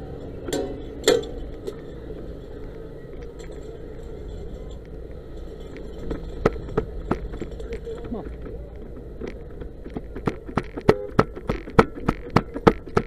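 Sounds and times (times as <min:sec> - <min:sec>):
engine low hum: 0:00.0 - 0:13.0
sharp metallic clanks: 0:00.4 - 0:01.9, 0:03.4 - 0:09.0.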